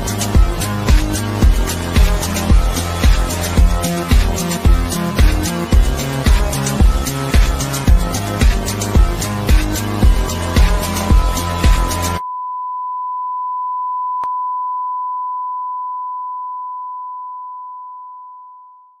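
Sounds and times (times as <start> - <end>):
music with heavy beat: 0.0 - 12.2.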